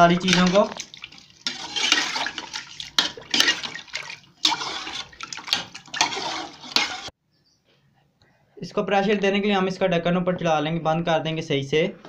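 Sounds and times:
spatula stirring sloshing liquid: 0.0s - 7.2s.

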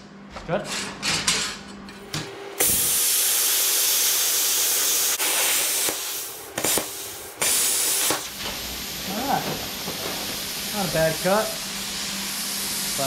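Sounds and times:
plasma cutter hiss: 2.6s - 13.0s.

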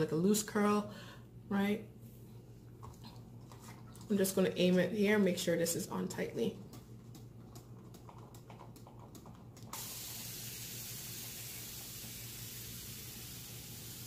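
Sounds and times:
hissing water mist spray: 9.8s - 14.0s.

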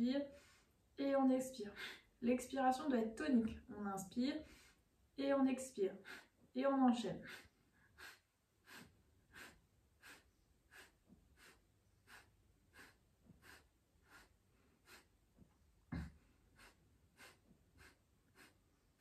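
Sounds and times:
woman's sharp rapid exhalations: 7.2s - 15.1s, 16.6s - 18.6s
low thump: 15.9s - 16.2s.

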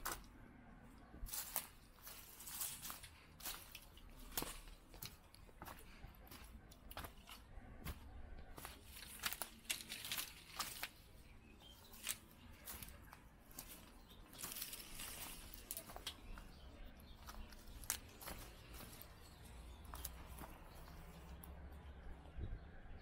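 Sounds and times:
footsteps on gritty ground: 0.0s - 22.2s
sharp crackles: 8.6s - 16.4s.

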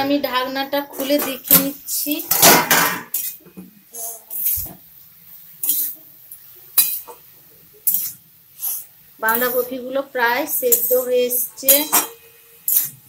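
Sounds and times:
spatula scraping a metal wok: 0.9s - 4.8s, 5.6s - 6.1s, 6.8s - 7.2s, 7.8s - 9.8s, 10.4s - 13.0s.

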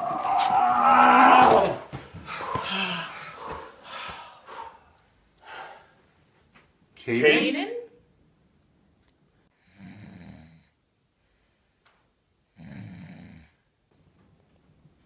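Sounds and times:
boy snoring: 9.6s - 10.8s, 12.5s - 13.6s.

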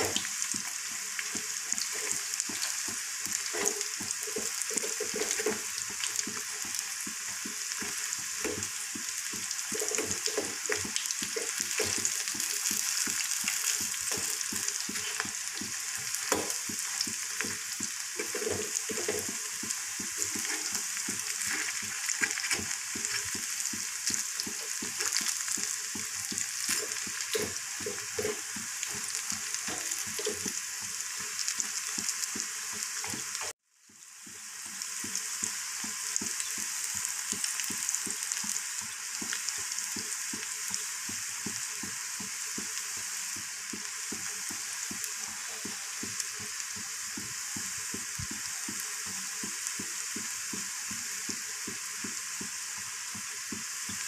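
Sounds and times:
food deep-frying in hot oil: 0.0s - 54.0s
metal spatula scraping pan: 3.4s - 5.7s, 18.2s - 19.4s, 20.2s - 23.4s.

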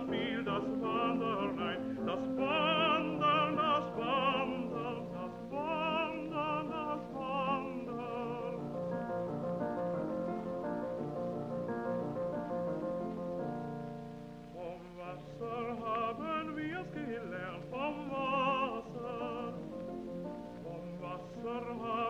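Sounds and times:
operatic voice singing with vibrato: 0.0s - 8.9s, 14.6s - 22.0s.

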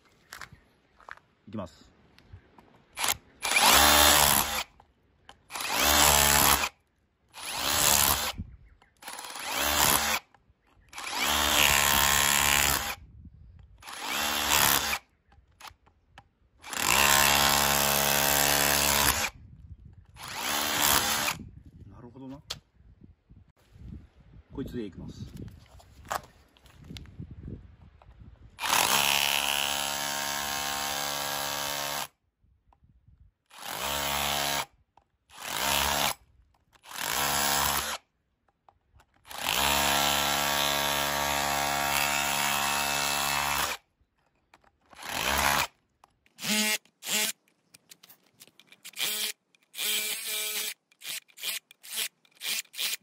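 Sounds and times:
hammer drill chipping concrete: 3.0s - 4.7s, 5.5s - 6.7s, 9.0s - 10.2s, 16.7s - 19.3s, 20.2s - 21.4s, 28.6s - 32.1s, 33.6s - 34.7s, 35.4s - 36.2s, 36.9s - 38.0s, 39.3s - 43.8s, 45.0s - 45.7s.

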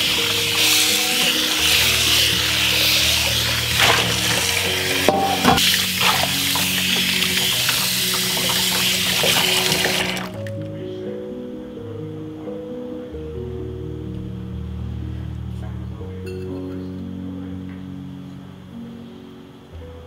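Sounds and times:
tap water running into strainer: 0.0s - 10.4s
background music: 0.0s - 20.0s.

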